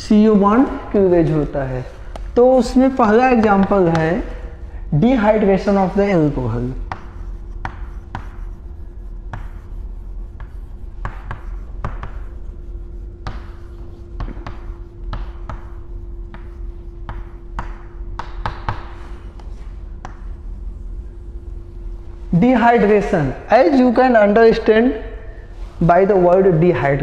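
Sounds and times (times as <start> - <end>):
steady hum: 0.0 - 27.0
chalk tapping and scratching on chalkboard: 1.2 - 4.5, 5.1 - 21.3.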